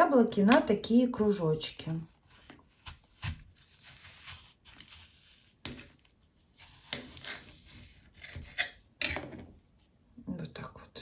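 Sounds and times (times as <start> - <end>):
knife slicing apple: 2.0 - 9.3.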